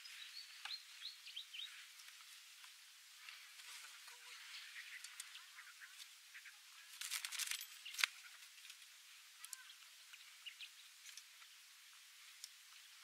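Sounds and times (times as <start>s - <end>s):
wooden trap rustling and clicking: 6.9s - 8.8s.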